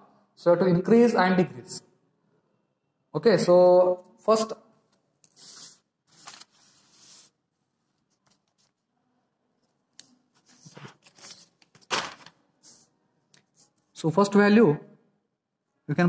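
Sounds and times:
paper rustling: 0:05.2 - 0:08.9, 0:09.6 - 0:12.9.

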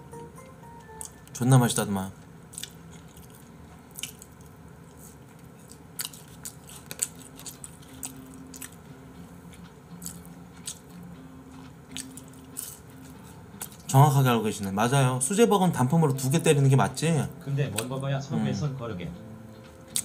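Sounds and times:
person chewing fries: 0:00.8 - 0:01.4, 0:02.4 - 0:14.8, 0:19.5 - 0:20.0.

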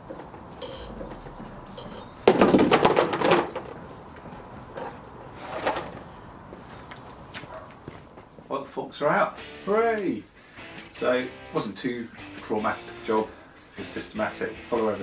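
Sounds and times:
faint bird chirps: 0:00.6 - 0:02.2.

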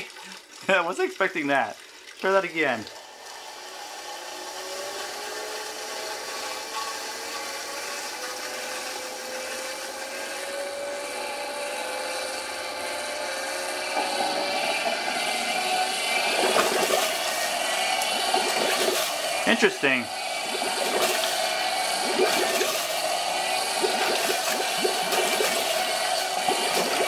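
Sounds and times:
water splashing and bubbling: 0:00.0 - 0:03.4, 0:15.6 - 0:19.4, 0:20.1 - 0:27.0
vacuum motor whine: 0:03.0 - 0:27.0.

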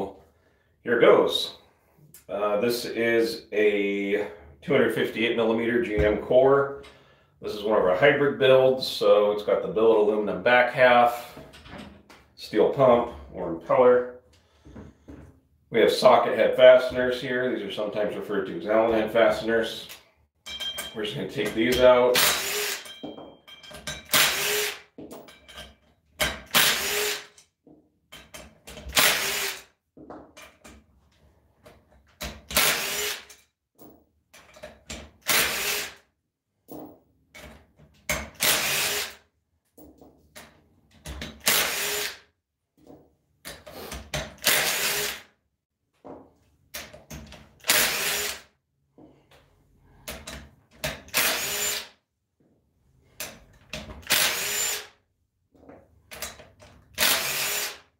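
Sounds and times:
cordless driver spinning screws: 0:22.2 - 0:22.9, 0:26.6 - 0:27.3, 0:28.9 - 0:29.6, 0:32.6 - 0:33.3, 0:35.2 - 0:36.0, 0:41.4 - 0:42.2, 0:44.4 - 0:45.2, 0:47.6 - 0:48.4, 0:51.1 - 0:51.9, 0:54.0 - 0:54.9, 0:57.0 - 0:57.8.

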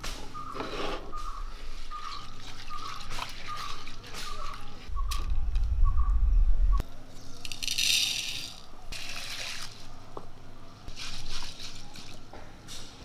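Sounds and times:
spices rattling in water: 0:01.8 - 0:04.9
low rumble: 0:04.9 - 0:06.9.

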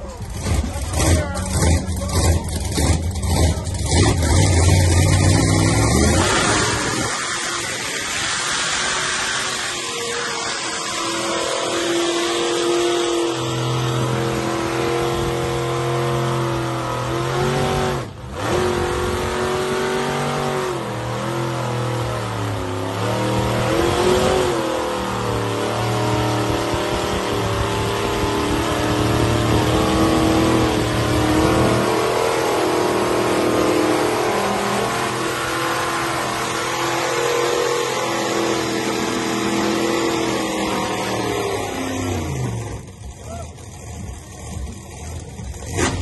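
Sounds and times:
truck engines revving: 0:00.0 - 0:46.0.

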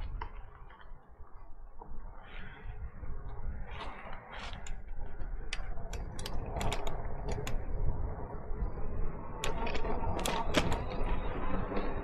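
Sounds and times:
low riding rumble: 0:00.0 - 0:12.0
bike parts clicking and rattling: 0:03.8 - 0:08.1, 0:09.3 - 0:11.9.

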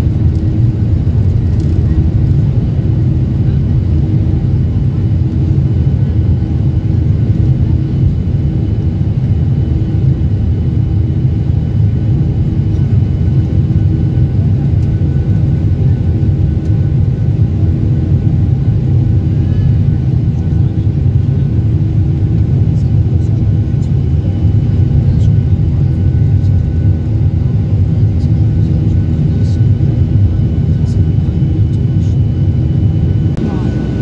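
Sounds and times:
faint engine whine: 0:00.0 - 0:34.0
jet engine rumble: 0:00.0 - 0:34.0.

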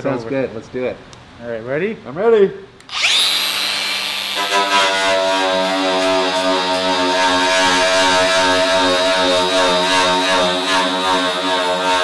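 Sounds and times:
angle grinder on steel: 0:02.9 - 0:12.0
steady droning tone: 0:04.4 - 0:12.0.

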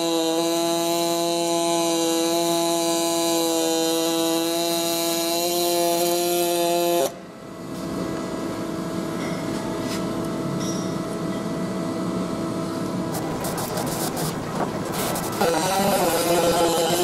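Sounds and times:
welder arc buzzing: 0:00.0 - 0:07.2, 0:13.1 - 0:17.0
background hum and hiss: 0:00.0 - 0:17.0.

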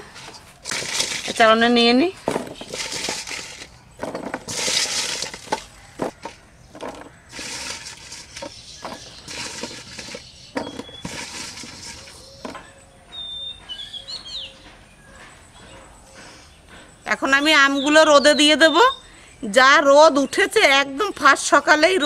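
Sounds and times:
fruit pieces tapping and clinking: 0:02.3 - 0:12.6
bird chirping: 0:05.6 - 0:19.3.

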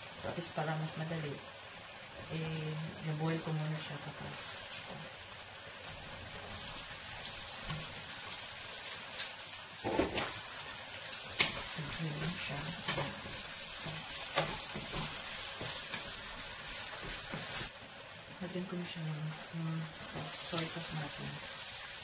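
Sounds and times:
green beans sizzling in hot oil: 0:00.0 - 0:22.0
spatula scraping against pan: 0:11.3 - 0:17.7.

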